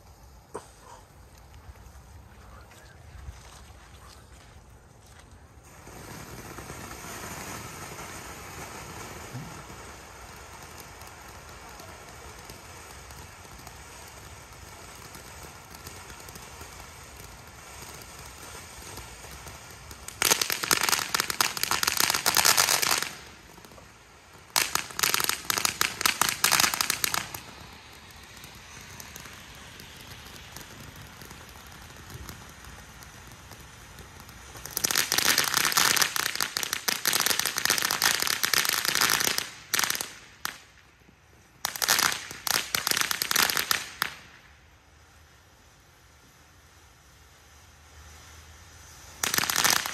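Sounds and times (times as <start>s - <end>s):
fireworks crackling: 0.0s - 49.9s.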